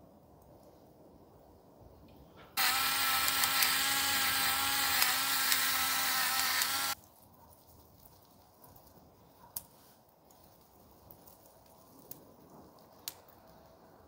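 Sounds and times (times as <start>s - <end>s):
electric pepper grinder running: 2.6s - 7.0s.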